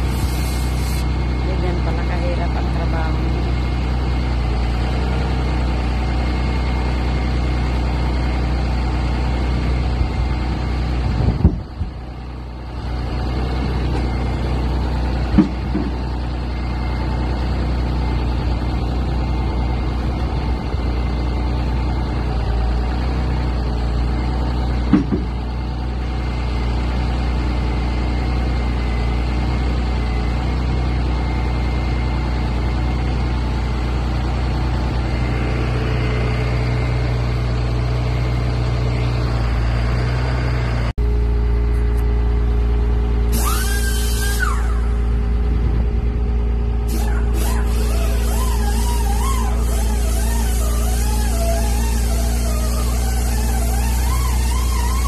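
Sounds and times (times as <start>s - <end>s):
diesel engine idling: 0.0s - 55.0s
short knocks: 24.9s - 25.4s.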